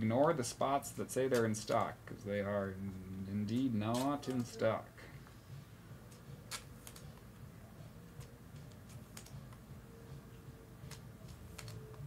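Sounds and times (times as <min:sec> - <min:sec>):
faint low hum: 0:00.0 - 0:12.0
cards clicking into plastic sleeves: 0:01.3 - 0:01.9, 0:03.4 - 0:04.7, 0:06.0 - 0:07.4, 0:08.0 - 0:09.7, 0:10.8 - 0:12.0.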